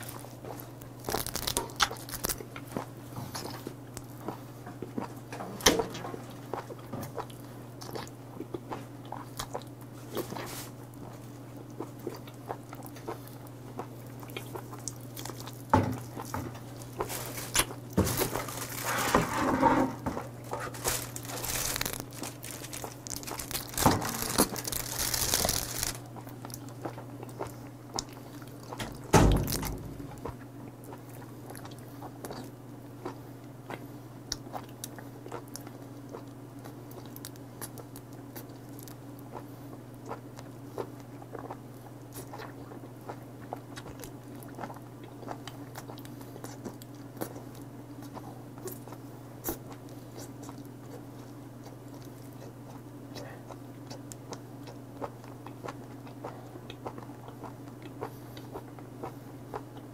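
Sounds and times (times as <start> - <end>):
person chewing with wet clicks: 0.0 - 5.3, 6.1 - 18.0, 20.3 - 29.1, 29.9 - 59.9
steady low hum: 0.0 - 59.9
heavy thump: 28.8 - 30.2.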